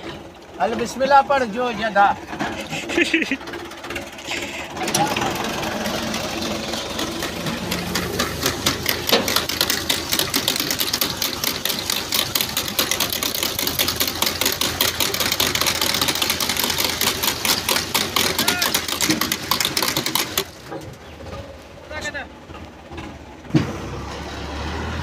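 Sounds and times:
planter clicking and clattering: 0:00.0 - 0:23.8
tractor engine running: 0:00.0 - 0:25.0.

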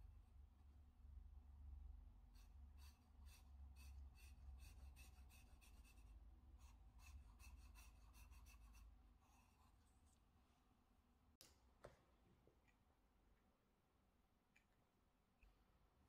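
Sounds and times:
pencil scratching on paper: 0:02.4 - 0:09.8.

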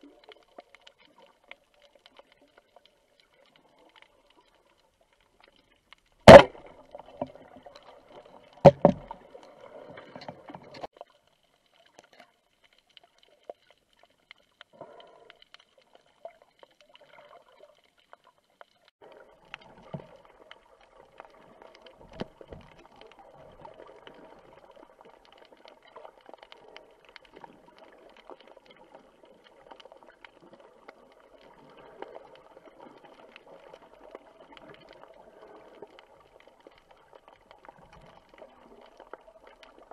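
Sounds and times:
sharp knocks underwater: 0:06.2 - 0:07.4, 0:08.6 - 0:09.2.

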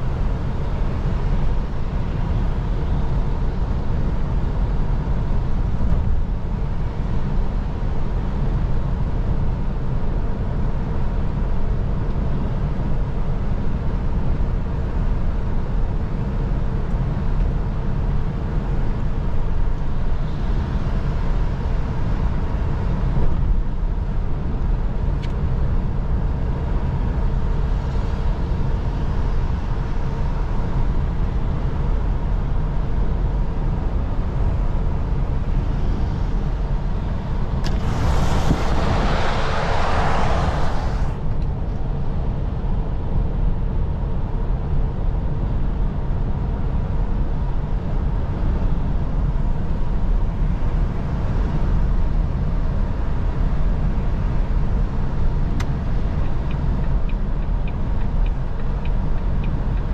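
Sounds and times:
diesel engine rumble: 0:00.0 - 0:59.9
tyres on wet road: 0:35.4 - 0:42.4.

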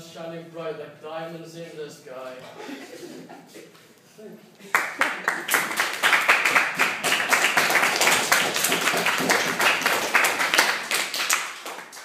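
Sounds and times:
students applauding: 0:04.7 - 0:12.0
hands clapping close by: 0:04.8 - 0:12.0.

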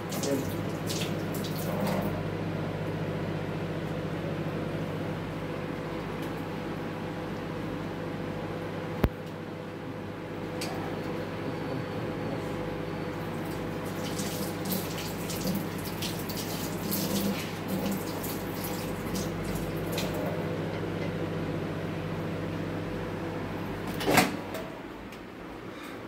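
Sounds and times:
microwave oven humming: 0:00.0 - 0:26.0
food crackling in microwave: 0:13.3 - 0:22.6.

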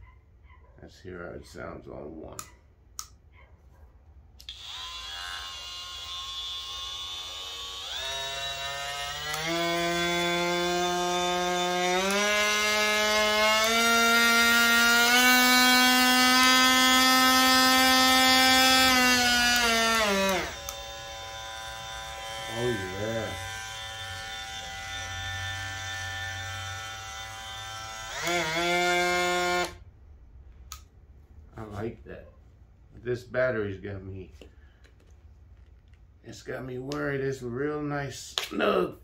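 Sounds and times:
oscillating multi-tool whine: 0:04.4 - 0:29.8.

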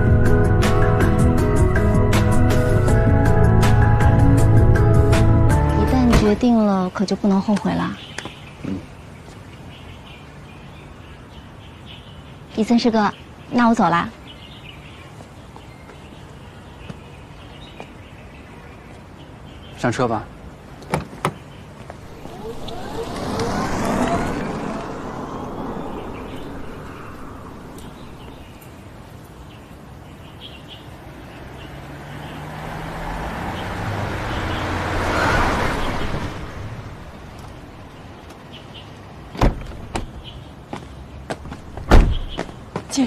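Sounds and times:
car engine humming: 0:21.9 - 0:28.8, 0:31.1 - 0:38.1
car driving off: 0:22.0 - 0:28.6, 0:31.1 - 0:38.0.

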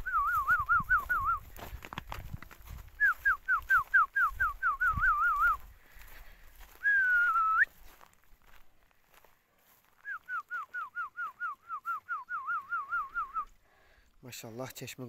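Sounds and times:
man whistling: 0:00.0 - 0:01.5, 0:03.0 - 0:05.6, 0:06.8 - 0:07.8, 0:10.0 - 0:13.6.

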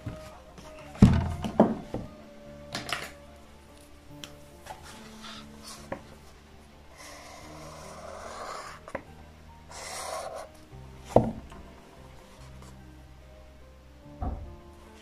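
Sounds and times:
soft background music: 0:00.0 - 0:15.0
highlighter scratching on paper: 0:07.0 - 0:09.0, 0:09.7 - 0:10.5.

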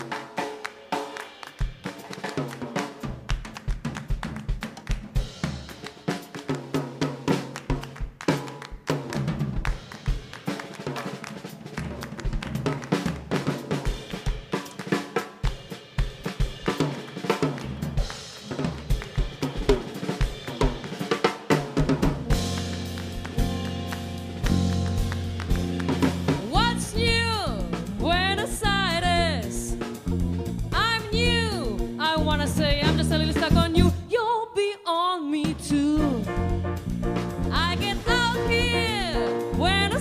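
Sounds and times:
drum kit solo: 0:00.0 - 0:34.1, 0:35.4 - 0:40.0
bass and chords: 0:22.2 - 0:34.0, 0:35.7 - 0:40.0.

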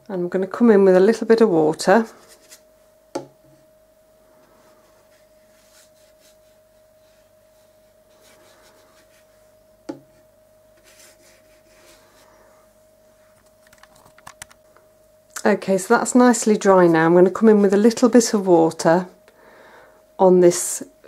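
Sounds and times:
faint humming tone: 0:00.0 - 0:21.0
wet brush swishing on paper: 0:04.5 - 0:12.3.

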